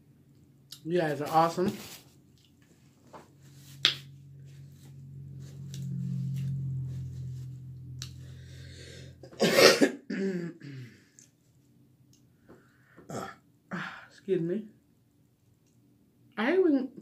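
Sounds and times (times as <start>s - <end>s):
low steady hum: 0.0s - 16.6s
paper napkin rustle: 1.1s - 2.2s.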